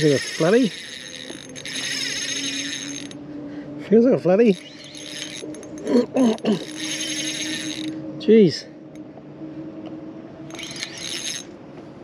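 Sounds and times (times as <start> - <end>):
fishing reel whirring: 0.0 - 3.2, 4.5 - 8.1, 10.5 - 11.5.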